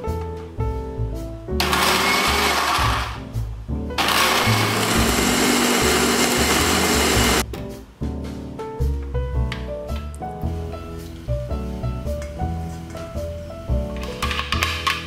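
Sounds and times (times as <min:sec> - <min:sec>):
electric blender chopping: 0:01.6 - 0:03.2, 0:04.0 - 0:07.4.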